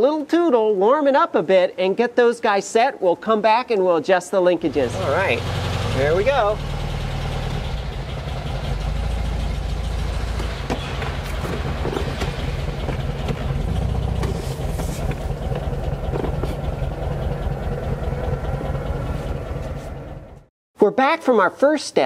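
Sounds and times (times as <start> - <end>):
car engine idling: 4.6 - 20.5.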